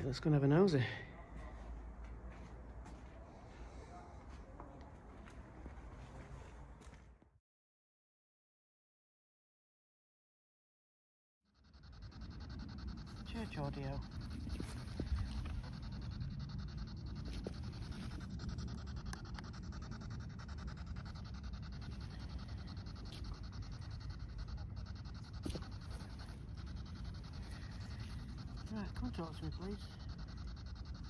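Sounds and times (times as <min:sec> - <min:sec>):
chopped radio static hiss: 0:12.2 - 0:19.5, 0:21.0 - 0:31.0.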